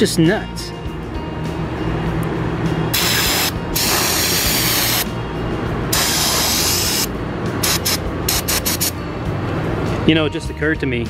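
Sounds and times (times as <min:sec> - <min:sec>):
aerosol spray hissing: 0:03.0 - 0:05.1, 0:06.0 - 0:09.0.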